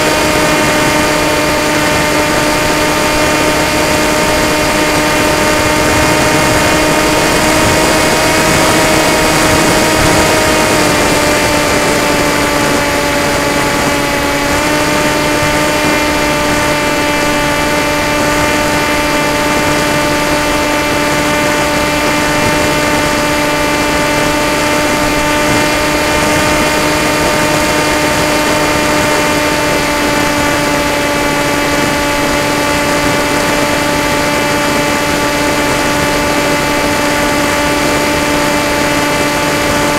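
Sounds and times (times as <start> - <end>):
electric motor whine: 0.0 - 39.9
wind rush: 0.0 - 39.9.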